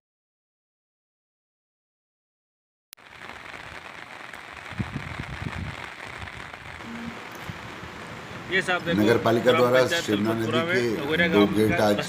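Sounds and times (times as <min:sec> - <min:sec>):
rushing water hiss: 0:03.0 - 0:11.3.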